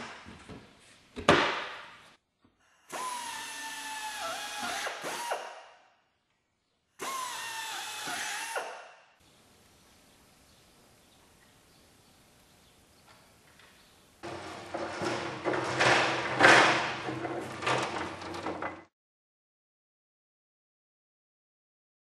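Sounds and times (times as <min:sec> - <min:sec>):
wooden panel knocking metal frame: 0:14.2 - 0:18.9.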